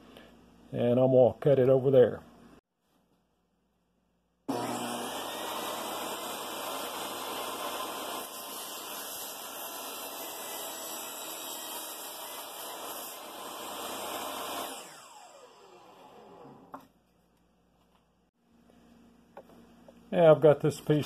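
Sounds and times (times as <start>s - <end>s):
saw motor winding down: 4.5s - 8.3s, 13.3s - 16.7s
table saw cutting wood: 4.5s - 16.8s.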